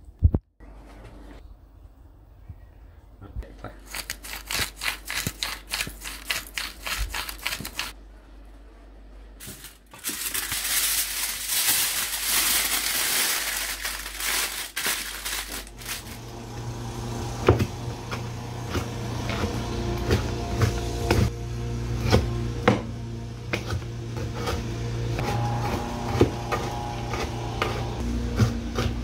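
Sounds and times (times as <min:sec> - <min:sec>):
aluminium foil crinkling: 0:03.8 - 0:08.0, 0:09.4 - 0:16.2.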